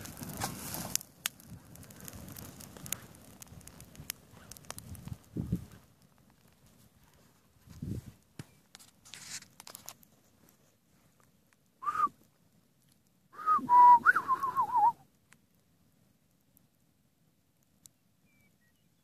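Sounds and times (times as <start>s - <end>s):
faint crackles: 0.0s - 16.9s, 17.5s - 19.0s
person whistling: 11.8s - 12.1s, 13.4s - 15.0s.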